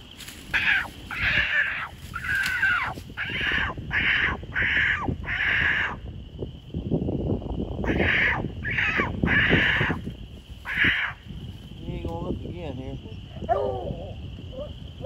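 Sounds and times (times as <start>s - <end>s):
dog barking: 13.5s - 13.9s.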